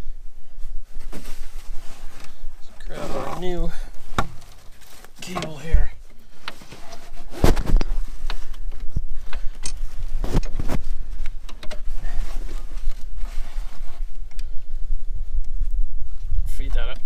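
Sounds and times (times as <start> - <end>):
cable knocking and rattling: 6.4 - 13.0.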